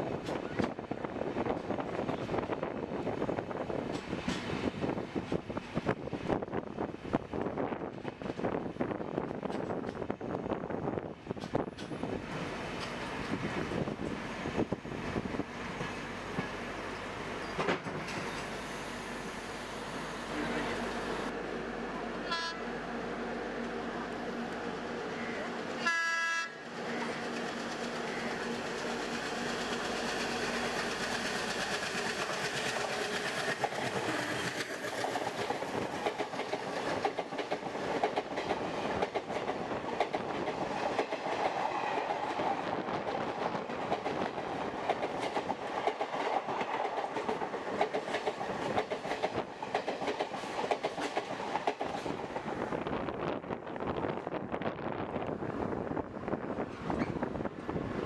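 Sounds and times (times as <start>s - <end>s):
passing train rushing noise: 0.0s - 58.0s
train horn: 22.2s - 22.7s, 25.8s - 26.6s
train wheels clattering over rail joints: 26.8s - 52.5s.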